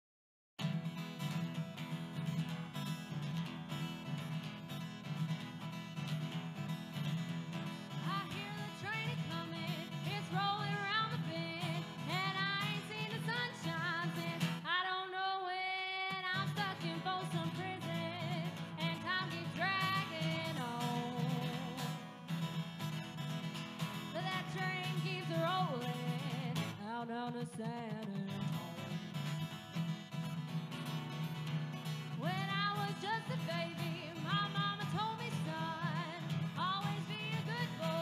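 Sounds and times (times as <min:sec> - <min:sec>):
guitar accompaniment: 0:00.6 - 0:38.0
person singing: 0:08.0 - 0:22.0, 0:24.2 - 0:28.9, 0:32.2 - 0:38.0.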